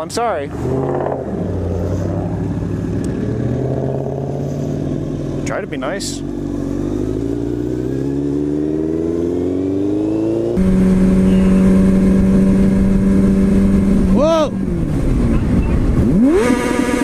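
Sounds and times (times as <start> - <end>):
motorcycle cruising: 0.0 - 17.0
road and wind noise: 0.0 - 17.0
motorcycle engine accelerating: 0.5 - 17.0.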